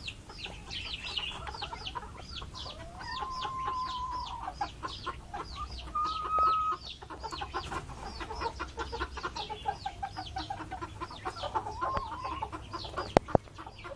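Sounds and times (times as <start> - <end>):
bird giving long steady call: 0.0 - 7.1
chicks peeping: 0.0 - 13.9
hens clucking: 0.0 - 13.9.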